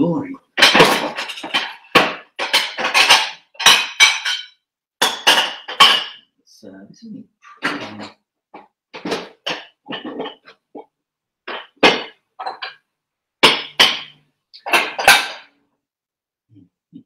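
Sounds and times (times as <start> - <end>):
dishes clattering in cupboard: 0.6 - 6.3, 7.5 - 8.2, 9.0 - 10.6, 11.5 - 12.8, 13.4 - 15.5.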